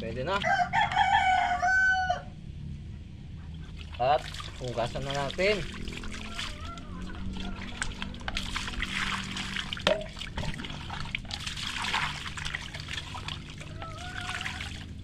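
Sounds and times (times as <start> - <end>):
water splashing: 3.6 - 15.0
water pouring into plastic basin: 3.8 - 15.0.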